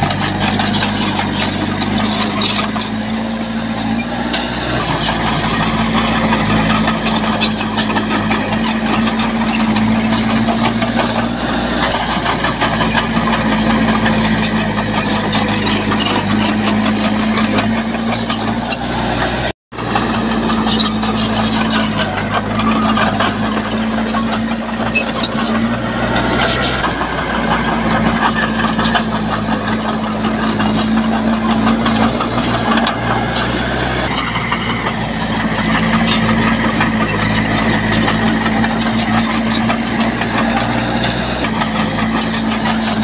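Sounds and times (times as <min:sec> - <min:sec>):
heavy diesel engine running: 0:00.0 - 0:43.0
machine rattling and clatter: 0:19.8 - 0:43.0.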